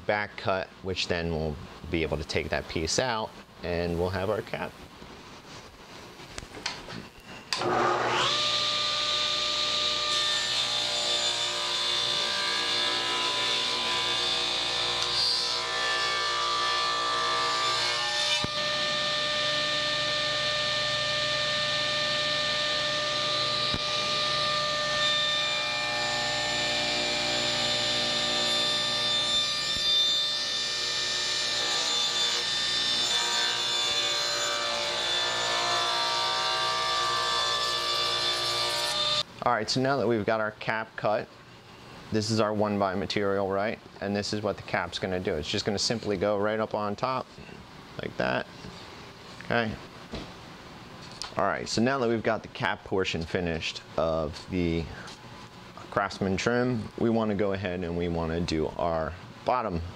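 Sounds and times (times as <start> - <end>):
table saw ripping board: 7.5 - 21.0
saw cutting board: 7.5 - 39.2
table saw running: 7.5 - 39.2.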